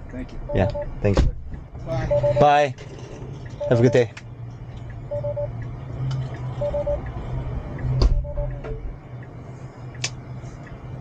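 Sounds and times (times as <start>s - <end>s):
low cabin hum: 0.0s - 2.4s, 6.5s - 11.0s
electronic chime beeps: 0.5s - 0.9s, 2.1s - 2.5s, 3.6s - 4.0s, 5.1s - 5.5s, 6.6s - 7.0s.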